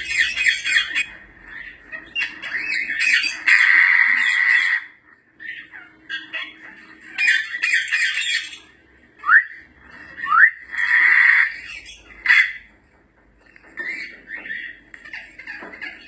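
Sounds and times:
parrots squawking: 0.0s - 16.0s
parrot whistles: 9.2s - 9.6s, 10.2s - 11.5s.

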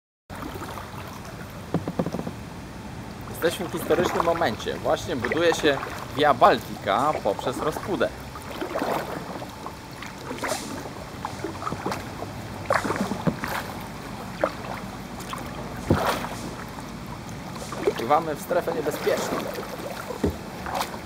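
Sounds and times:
paddle dipping and dripping: 0.3s - 21.0s
small water splashes: 0.3s - 21.0s
sharp splash or knock: 1.7s - 2.4s, 10.2s - 13.8s, 14.4s - 16.7s.

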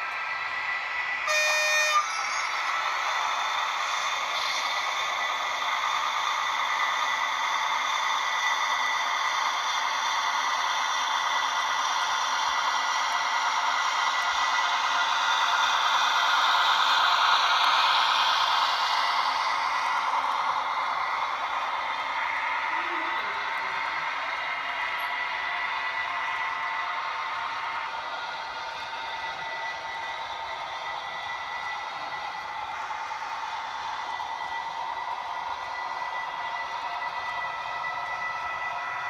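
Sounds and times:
model train whirring on track: 0.0s - 39.0s
model train horn: 1.3s - 2.5s.

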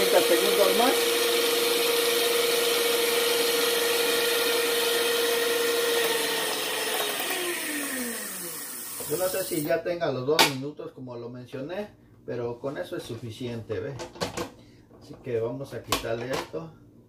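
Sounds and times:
stand mixer motor whining: 0.0s - 9.7s.

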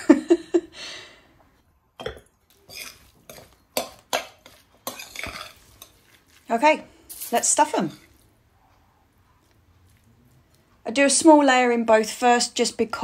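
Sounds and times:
spoon clinking in glass bowl: 2.0s - 6.1s.

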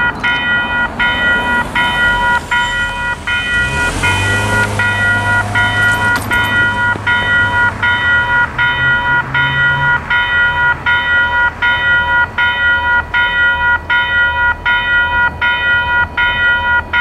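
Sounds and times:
electronic crossing bell ringing: 0.0s - 17.0s
car driving past: 0.8s - 12.4s.

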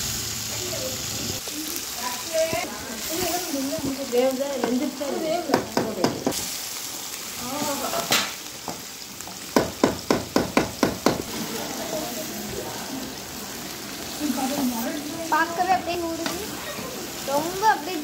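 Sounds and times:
sharp knocks on metal pot: 8.7s - 11.2s.

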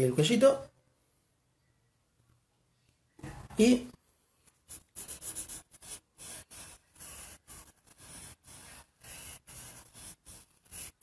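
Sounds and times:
pencil sketching on paper: 4.4s - 11.0s.

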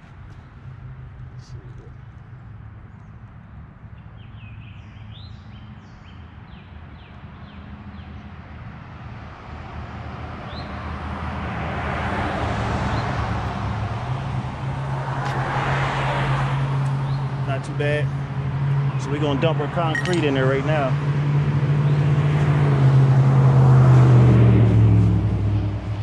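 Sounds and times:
birds chirping: 2.8s - 8.4s, 16.8s - 21.0s
vehicle passing: 8.8s - 26.0s.

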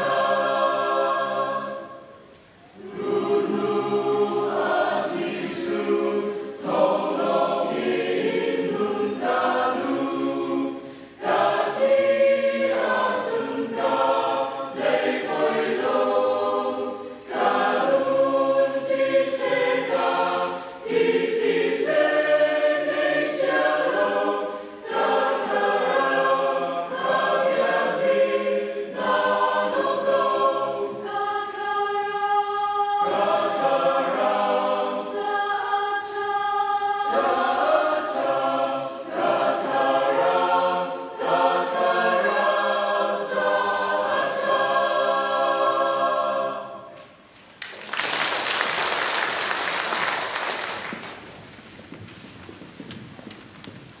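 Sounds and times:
mixed choir singing: 0.0s - 47.2s
applause: 47.6s - 51.4s.

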